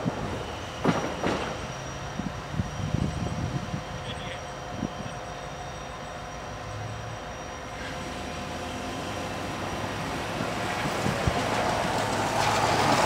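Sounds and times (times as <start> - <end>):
diesel locomotive engine drone: 0.0 - 13.0.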